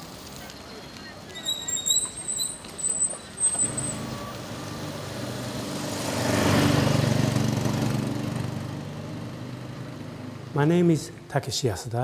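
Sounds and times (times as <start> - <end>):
brief high squeaks: 0.7 - 4.5
small vehicle engine passing: 3.2 - 11.3.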